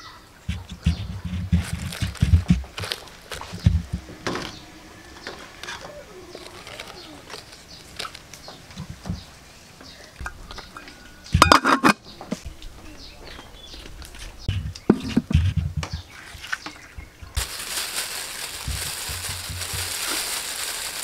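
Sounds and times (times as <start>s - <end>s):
handling clicks and rustles: 0.5s - 4.6s, 5.3s - 9.3s, 10.1s - 12.5s
metal pot lid clattering: 11.4s - 12.0s.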